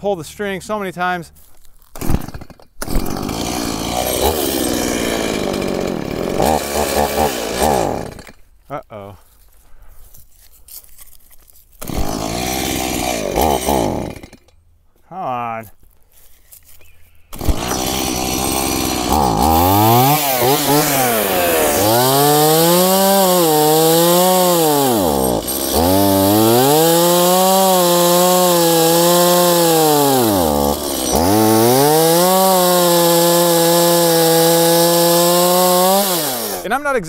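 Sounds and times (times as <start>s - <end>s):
chainsaw engine bogging down: 3.0s - 8.4s, 17.3s - 36.7s.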